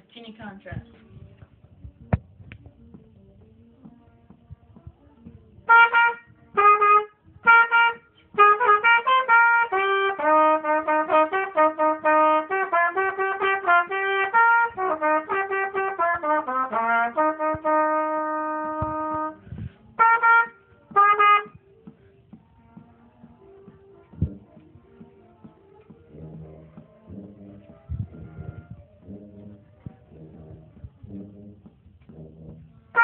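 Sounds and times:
solo trumpet playing: 5.7 - 21.6, 30.2 - 33.0.

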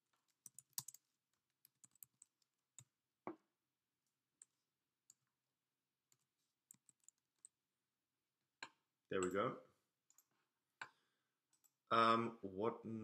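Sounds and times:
faint computer keyboard keystrokes: 0.4 - 1.0.

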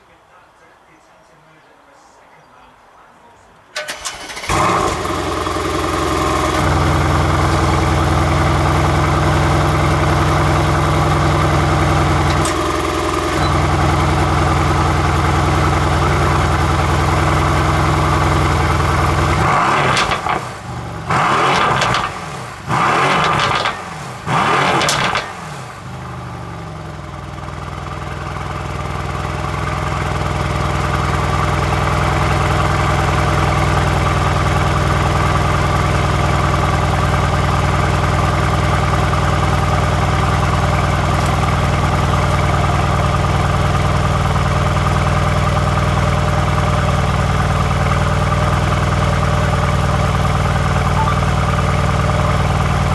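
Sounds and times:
car engine revving: 3.9 - 27.4
deep engine idle: 4.5 - 19.4, 25.7 - 52.9.

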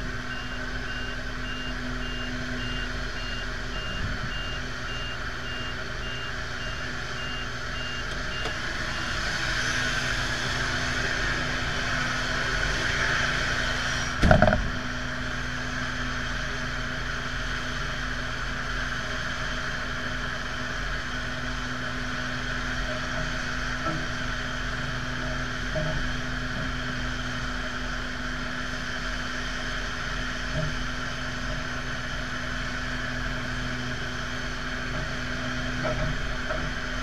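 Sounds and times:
engine hum: 0.0 - 37.0
reversing beeper: 0.2 - 9.4
metal clank of towbar: 14.2 - 14.7.

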